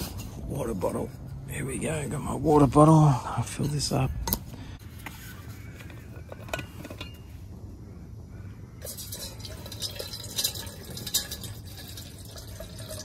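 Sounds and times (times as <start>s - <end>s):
water pouring into metal pot: 8.8s - 13.0s.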